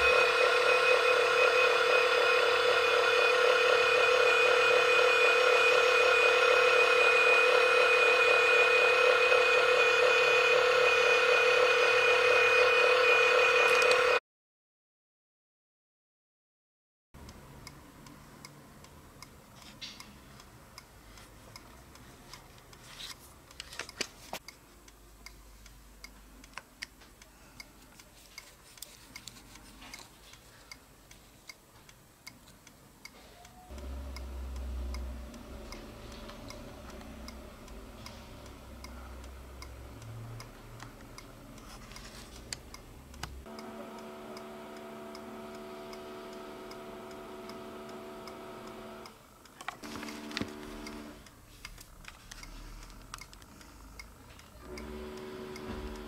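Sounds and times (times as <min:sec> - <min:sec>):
faint regular ticking: 0:17.2 - 0:22.8, 0:24.4 - 0:56.0.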